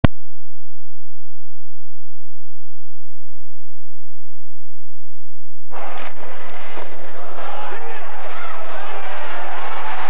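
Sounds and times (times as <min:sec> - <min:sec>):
low steady hum: 0:00.0 - 0:08.3
videotape hiss: 0:02.2 - 0:10.0.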